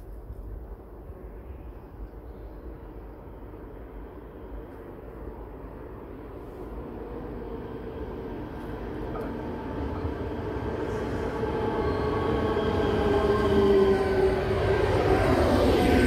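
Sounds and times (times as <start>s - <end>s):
electric train rumble: 0.0s - 16.0s
train whine falling in pitch: 8.8s - 16.0s.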